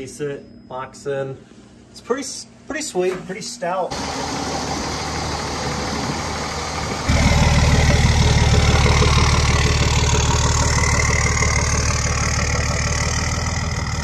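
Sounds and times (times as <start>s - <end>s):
diesel engine idling: 3.9s - 14.0s.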